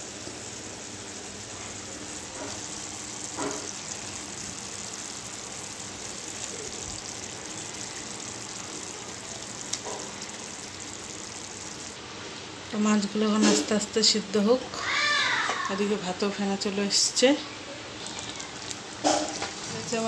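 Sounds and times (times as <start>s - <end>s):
gravy simmering and sizzling: 0.0s - 12.7s, 16.6s - 20.0s.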